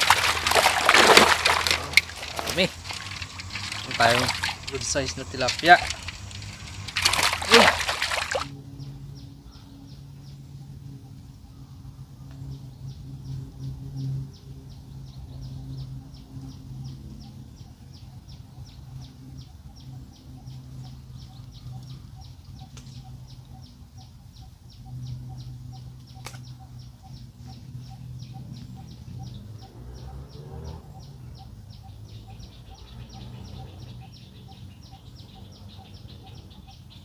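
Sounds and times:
high ticking: 0.0 - 8.5.

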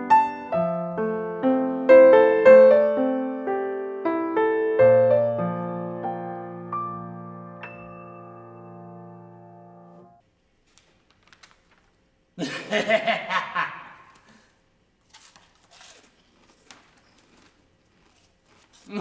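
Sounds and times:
piano chord: 0.0 - 10.2
newspaper pages rustling: 10.6 - 12.1.

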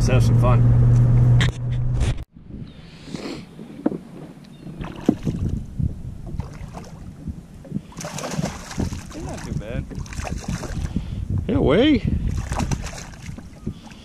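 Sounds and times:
low hum in truck cab: 0.0 - 2.7
wind: 0.0 - 14.0
water lapping around boat: 3.1 - 11.2, 12.1 - 14.0
water splashes: 4.7 - 5.6, 6.2 - 11.0, 12.2 - 14.0.

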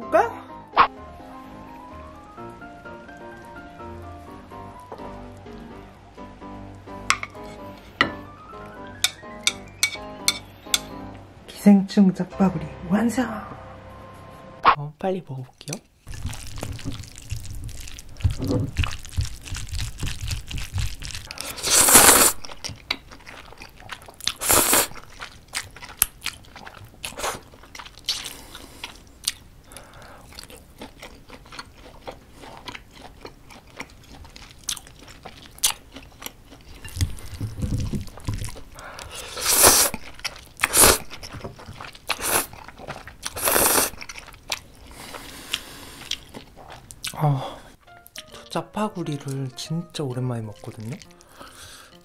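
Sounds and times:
soft chewing: 3.0 - 5.9, 15.5 - 48.5, 50.4 - 52.0
noodles slurped: 16.1 - 29.1, 29.7 - 47.2
wet mouth clicks: 45.4 - 47.2.

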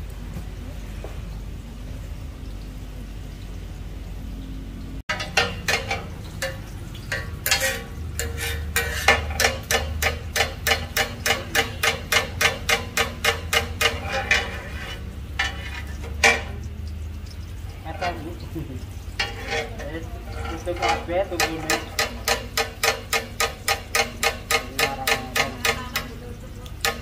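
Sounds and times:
metal utensil striking a pan: 5.1 - 17.0, 19.1 - 27.0.

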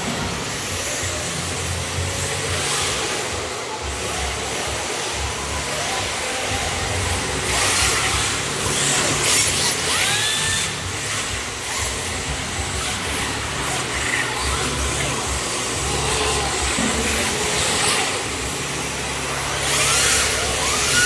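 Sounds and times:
small electric motors whining: 0.0 - 21.0.

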